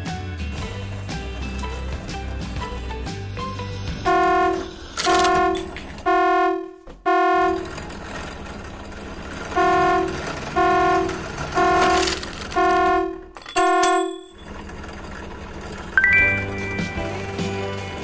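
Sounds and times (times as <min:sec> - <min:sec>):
electronic horn tone blasts: 0:04.0 - 0:07.8, 0:09.5 - 0:14.4.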